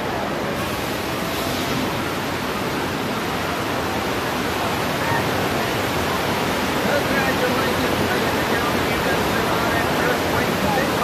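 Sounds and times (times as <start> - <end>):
cascading water rushing: 0.0 - 11.0.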